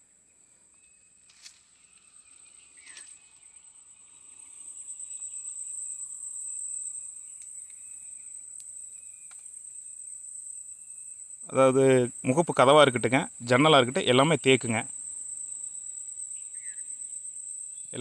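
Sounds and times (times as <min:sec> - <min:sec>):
crickets trilling: 0:00.0 - 0:18.0
faint ticks: 0:07.3 - 0:07.9, 0:08.5 - 0:09.5.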